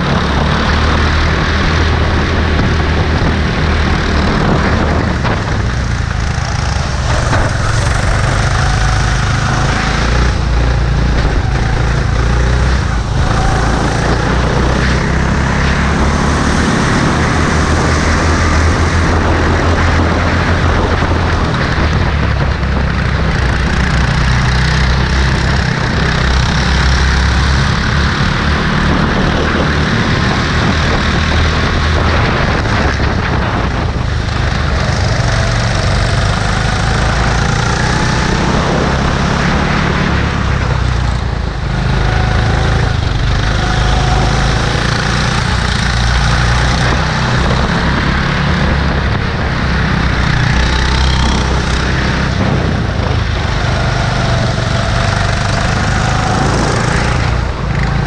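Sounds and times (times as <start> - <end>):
go-kart engine racing: 0.0 - 58.0
other karts: 0.0 - 58.0.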